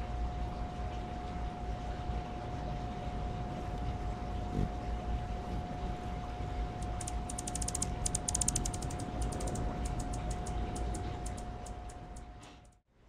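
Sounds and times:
steady thin tone: 6.8 - 12.3
high-pitched ticks: 6.8 - 12.8.

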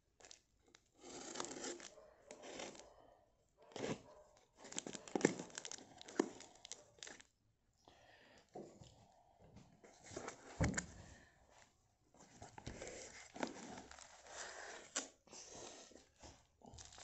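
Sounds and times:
tape and cardboard tearing: 0.9 - 1.9
box cutter slicing tape: 1.0 - 1.8.

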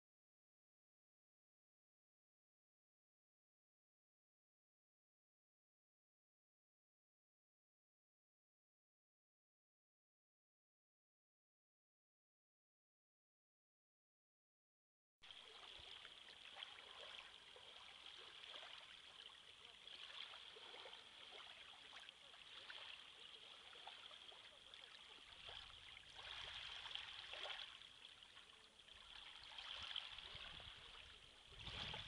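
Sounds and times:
small waves lapping on shore: 15.3 - 32.0.

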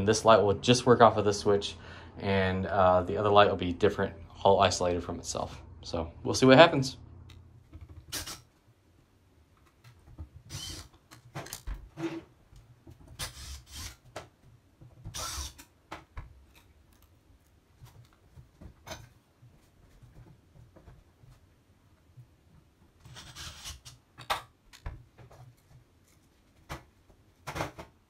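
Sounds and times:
short drill bursts: 10.5 - 10.9, 13.2 - 14.0, 15.1 - 15.6.

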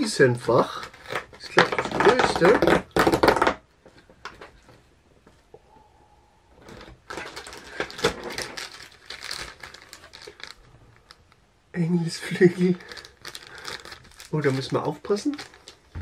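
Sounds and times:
plastic bag crinkling: 0.6 - 3.6, 6.6 - 11.4, 12.1 - 16.0
cardboard rustling and tapping: 0.9 - 4.8.

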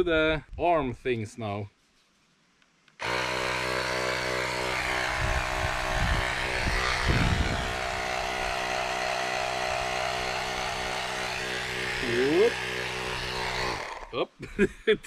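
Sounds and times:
electric air compressor running: 3.0 - 14.2.

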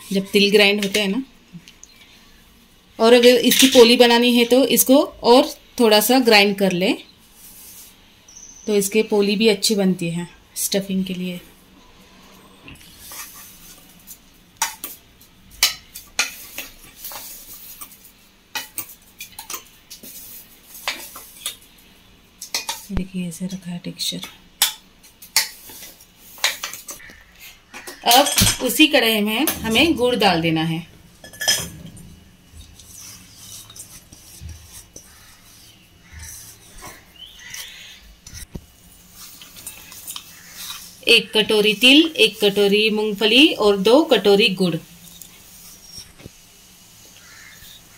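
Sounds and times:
spoon scraping ground nuts: 32.6 - 38.5, 39.2 - 42.5.

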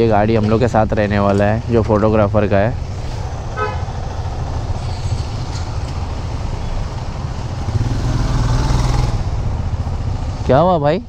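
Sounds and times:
motorcycle engines idling: 0.0 - 11.0.

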